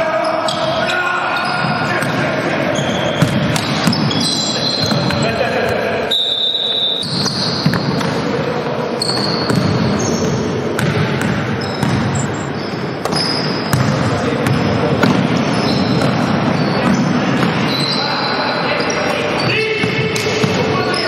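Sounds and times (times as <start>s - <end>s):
voices in sports hall: 0.0s - 21.0s
basketball bouncing on wooden floor: 7.1s - 8.1s, 9.2s - 12.3s.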